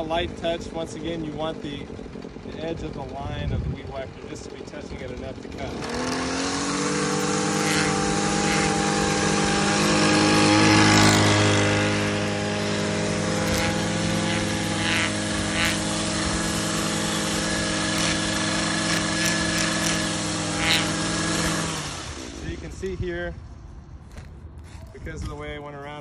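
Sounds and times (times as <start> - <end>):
string trimmer running: 0.0 - 24.9
sharp ticks: 13.4 - 15.8, 17.9 - 20.9.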